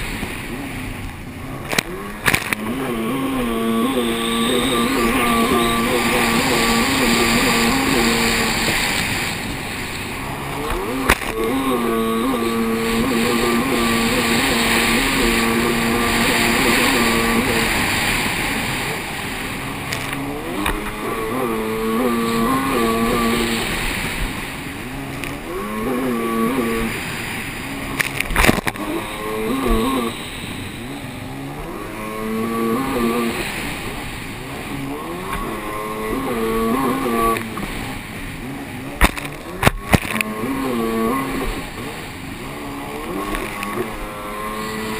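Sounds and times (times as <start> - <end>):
jet ski engine running hard: 0.0 - 44.9.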